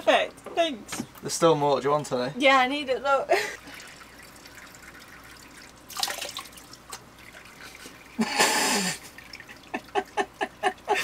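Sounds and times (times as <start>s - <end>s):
water splashing at a sink: 3.6s - 8.0s.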